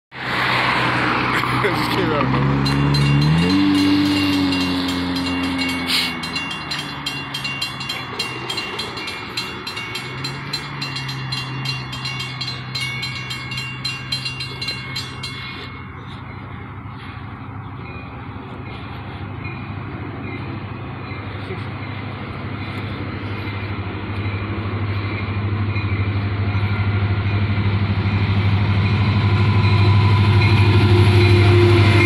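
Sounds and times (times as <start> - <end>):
passing car engine: 0.1 - 16.3
crossing warning bell dinging: 1.8 - 32.0
low steady drone: 2.6 - 32.0.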